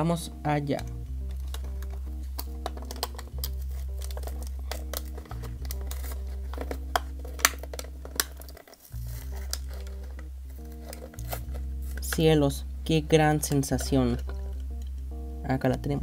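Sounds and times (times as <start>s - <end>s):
background music with low notes: 0.0s - 16.0s
plastic blister pack crinkling: 1.3s - 12.3s.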